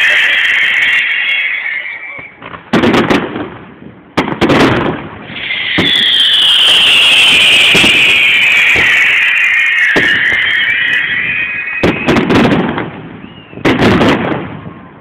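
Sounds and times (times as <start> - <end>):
high-pitched firework hiss: 0.0 - 2.8, 5.2 - 13.7
firework bursts echoing: 0.0 - 15.0.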